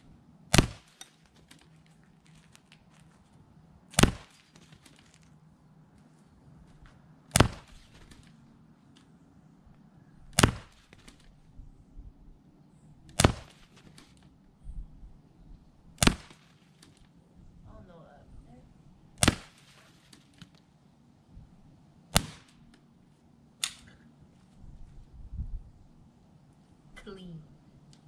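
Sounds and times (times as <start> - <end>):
pellet pistol shots: 0.5 - 1.2, 3.9 - 4.6, 7.3 - 8.3, 10.3 - 11.2, 13.1 - 13.9, 16.0 - 16.6, 19.2 - 19.8, 22.1 - 22.6.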